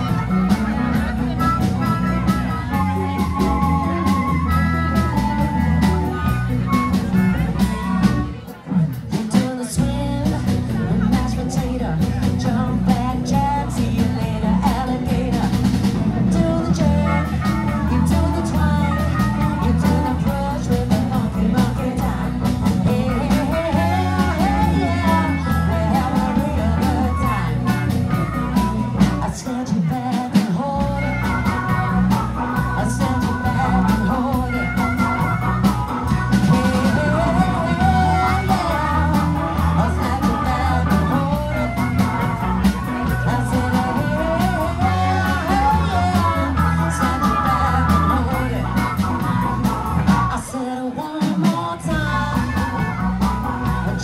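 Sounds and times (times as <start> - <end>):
wavering lead melody: 0.0 - 8.4, 30.9 - 50.4
bass guitar: 0.0 - 54.0
drum kit: 0.0 - 54.0
keyboard: 0.0 - 54.0.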